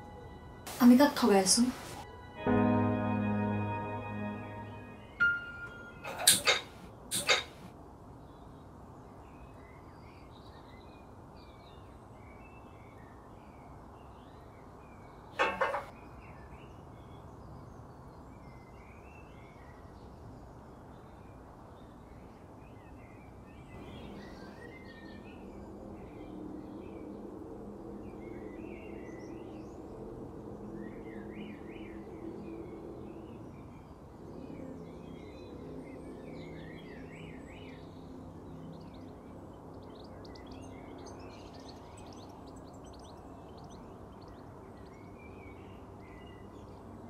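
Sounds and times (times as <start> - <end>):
low hum: 0.0 - 7.7
gas hiss: 6.1 - 7.6
small birds chirping: 8.3 - 27.0, 30.6 - 47.0.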